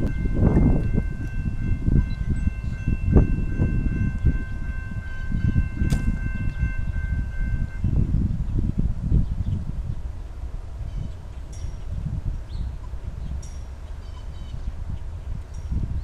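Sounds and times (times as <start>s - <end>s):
distant locomotive horn blast: 0.0s - 8.2s
wind buffeting microphone: 0.0s - 16.0s.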